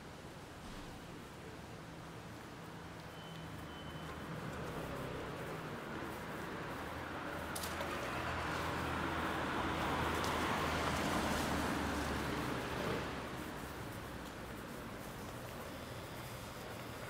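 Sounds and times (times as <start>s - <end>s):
low steady engine hum: 0.1s - 17.0s
motor vehicle passing: 4.0s - 17.0s.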